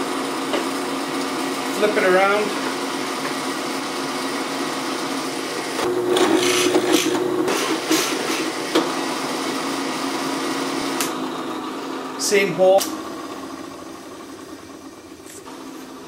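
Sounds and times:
drill press motor running: 0:00.0 - 0:16.0
drill bit boring into wood: 0:05.8 - 0:07.9.

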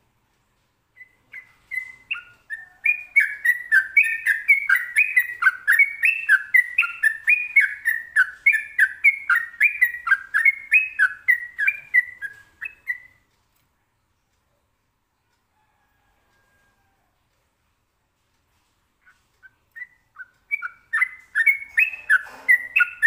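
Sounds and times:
bird singing whistled notes: 0:01.0 - 0:13.2, 0:19.0 - 0:23.0.

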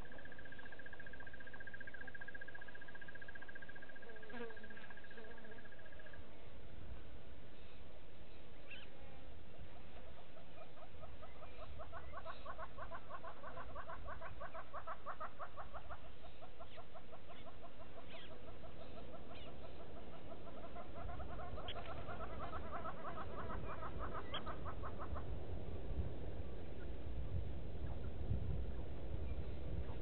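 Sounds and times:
animal clucking calls: 0:09.7 - 0:25.6
steady low rumble: 0:15.5 - 0:30.0.

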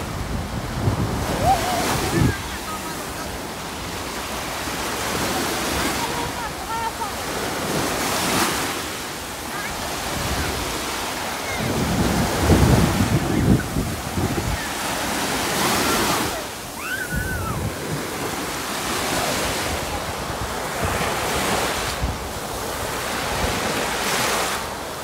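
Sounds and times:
wind rumble on microphone: 0:00.0 - 0:02.6, 0:11.5 - 0:16.3, 0:17.0 - 0:18.5, 0:19.2 - 0:24.6
small waves breaking on sand: 0:00.0 - 0:25.0.

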